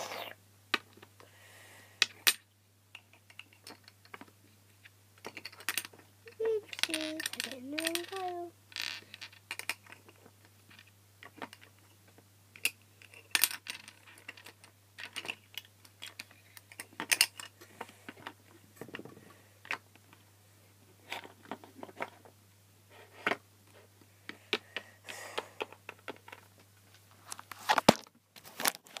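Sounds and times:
plastic toys clicking and rattling: 0:03.0 - 0:11.9, 0:12.5 - 0:20.2, 0:24.5 - 0:26.6.

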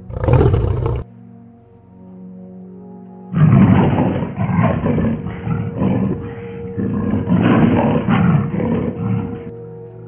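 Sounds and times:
big cat roaring and snarling: 0:00.0 - 0:01.0, 0:03.4 - 0:09.5.

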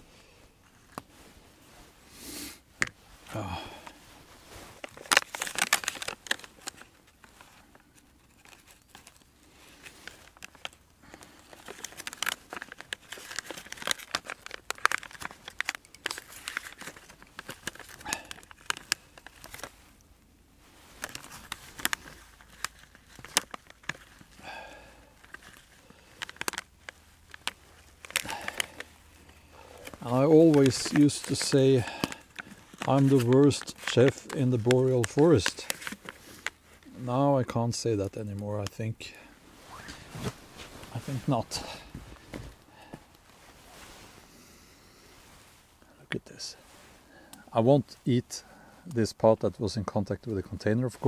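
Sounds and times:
food wrapper crinkling: 0:03.4 - 0:20.1, 0:20.8 - 0:37.0.

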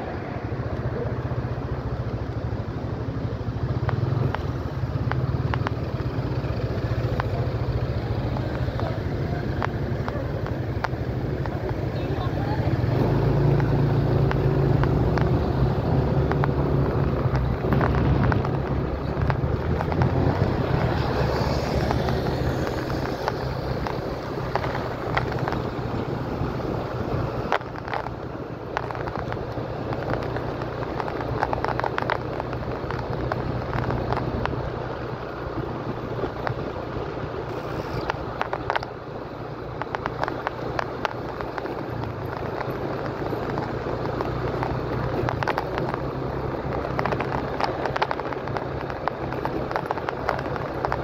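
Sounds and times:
road noise: 0:00.0 - 0:51.0
scooter engine hum: 0:00.0 - 0:51.0
wind on microphone: 0:08.2 - 0:39.1.

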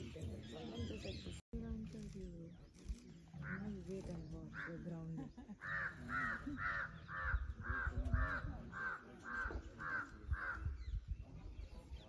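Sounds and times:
crow cawing: 0:05.6 - 0:10.6.

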